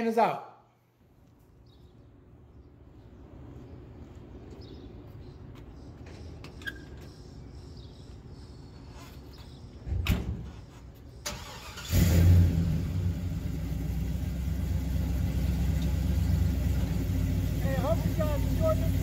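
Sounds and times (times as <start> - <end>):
truck engine starting and idling: 10.6 - 19.0.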